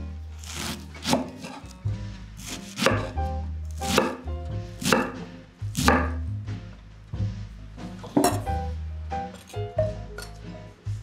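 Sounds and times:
knife chopping on wooden board: 0.5s - 1.6s, 2.4s - 3.2s, 3.8s - 4.2s, 4.8s - 6.2s.

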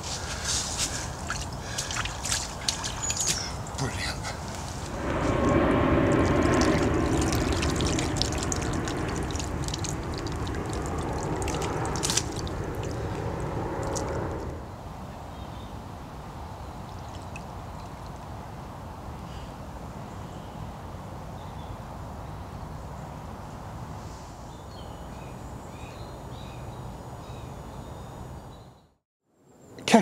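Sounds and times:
small splashes: 0.0s - 3.9s, 4.5s - 14.6s, 16.8s - 18.3s
water sloshing and dripping: 0.0s - 14.6s, 16.8s - 18.4s.

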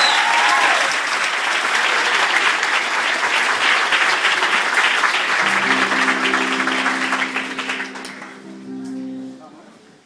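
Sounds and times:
audience applauding: 0.0s - 8.7s
sustained instrumental chord: 5.4s - 10.0s.

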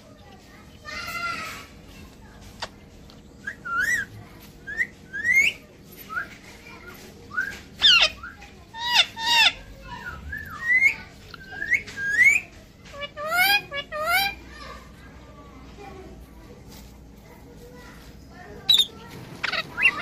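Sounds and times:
parakeet whistled calls: 3.4s - 4.1s, 4.7s - 5.6s, 7.3s - 12.5s.

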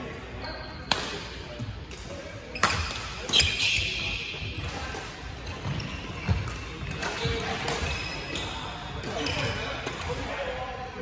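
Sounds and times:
racket hitting shuttlecock: 0.9s - 2.0s.

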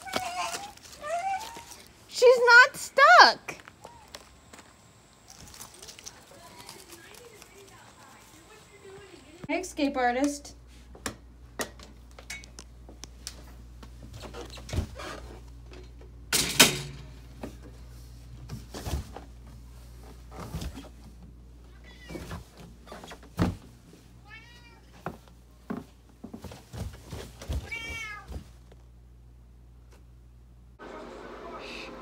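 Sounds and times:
footsteps on carpeted stairs: 24.9s - 28.9s
cat meowing: 27.6s - 28.3s.

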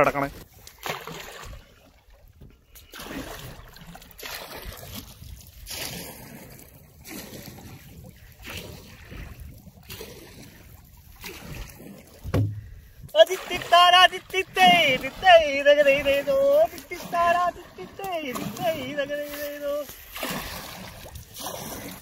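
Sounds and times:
canoe paddle splashing in water: 0.3s - 22.0s
low thump: 12.3s - 12.8s.

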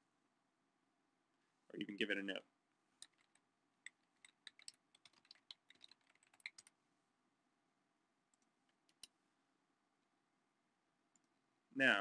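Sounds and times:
typing on computer keyboard: 3.0s - 6.7s.

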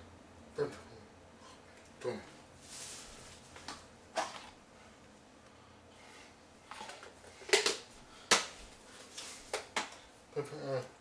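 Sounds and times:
faint rustling: 1.5s - 4.6s.

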